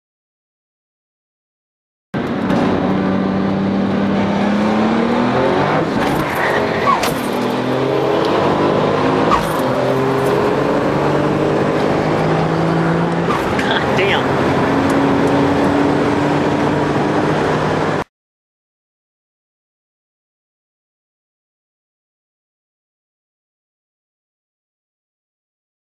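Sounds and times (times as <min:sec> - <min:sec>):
engines revving at gear changes: 0:02.2 - 0:18.1
race car engines accelerating: 0:02.2 - 0:18.1.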